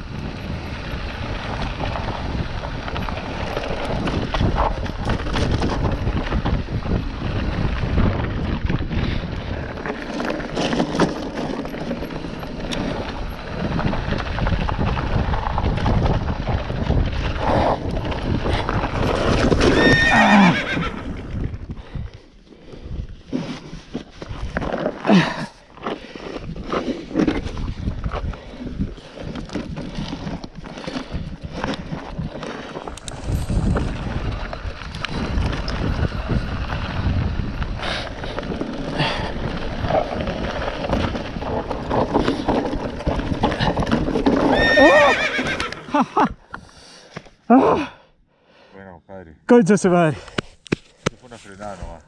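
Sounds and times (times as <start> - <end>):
wind buffeting microphone: 0.0 - 10.6, 11.3 - 22.2, 27.3 - 44.9
bike tyres crunching over gravel: 0.0 - 47.5.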